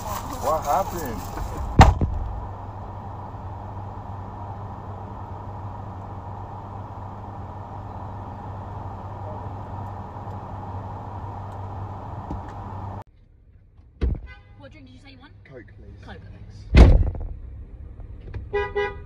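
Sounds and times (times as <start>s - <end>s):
car engine hum inside cabin: 0.0s - 14.0s.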